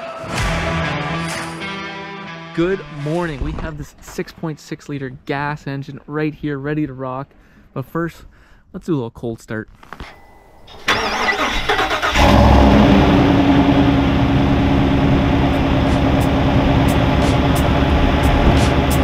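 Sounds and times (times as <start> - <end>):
starter motor cranking: 10.7 - 13.2
engine starting and idling: 10.7 - 19.0.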